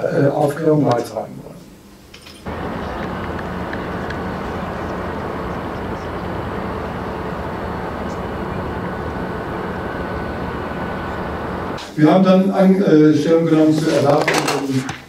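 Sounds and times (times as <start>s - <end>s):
low hum: 2.5s - 11.8s
steady noise: 2.5s - 11.9s.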